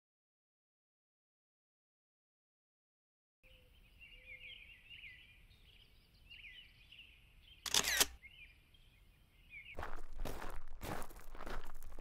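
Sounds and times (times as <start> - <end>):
small birds chirping: 3.4 - 10.6
loud crunch of a step: 9.8 - 12.0.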